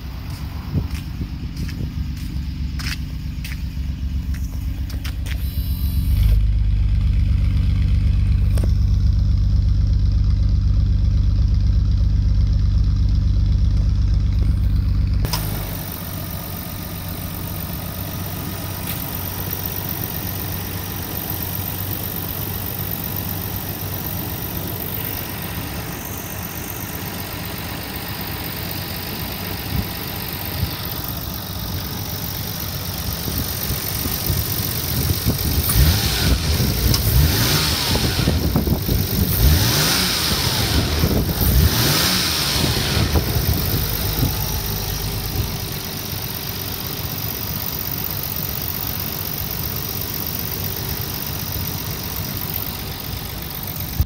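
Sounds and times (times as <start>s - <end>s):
deep engine exhaust note: 0.0s - 18.8s, 33.0s - 47.3s.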